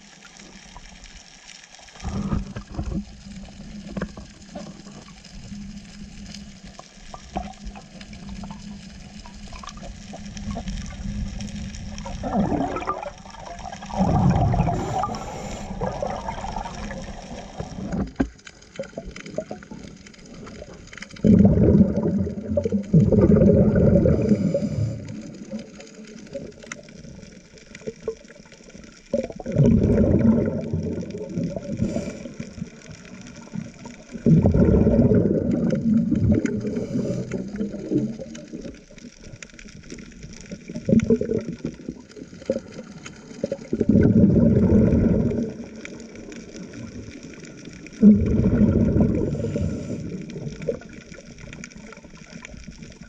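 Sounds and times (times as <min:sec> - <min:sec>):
underwater bubbling rumble: 0:00.0 - 0:53.0.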